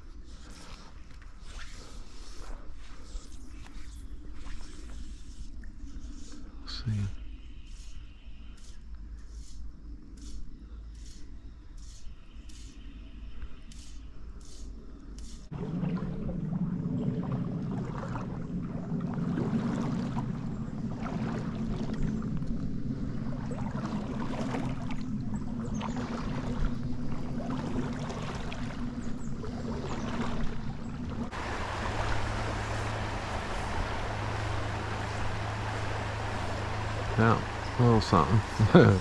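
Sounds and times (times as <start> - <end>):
creek water running: 15.2 - 39.0
small water splashes: 15.4 - 39.0.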